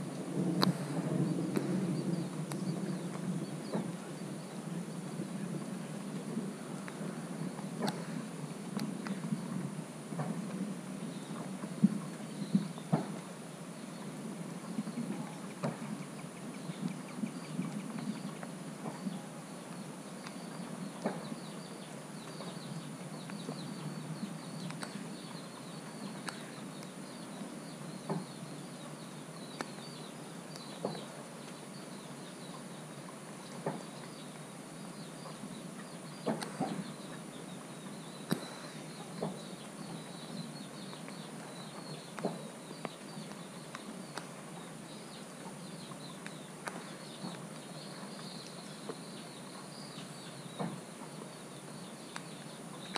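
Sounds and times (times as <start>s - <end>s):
steady low rush: 0.0s - 20.9s
raindrops ticking on camera: 0.0s - 52.9s.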